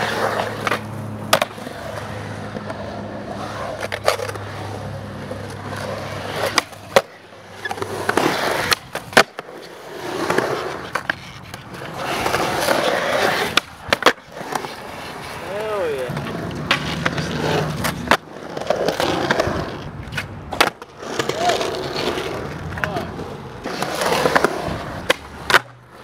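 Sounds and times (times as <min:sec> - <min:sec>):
skateboard clacking on concrete: 0:00.0 - 0:26.0
skateboard wheels rolling on concrete: 0:00.0 - 0:26.0.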